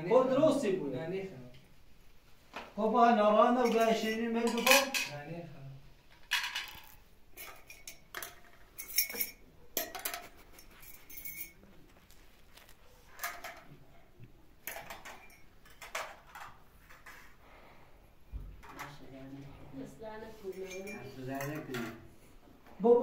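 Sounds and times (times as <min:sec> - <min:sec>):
tableware clinking: 0:03.6 - 0:05.2, 0:06.1 - 0:12.1, 0:13.1 - 0:13.8, 0:14.6 - 0:17.1, 0:20.3 - 0:22.1.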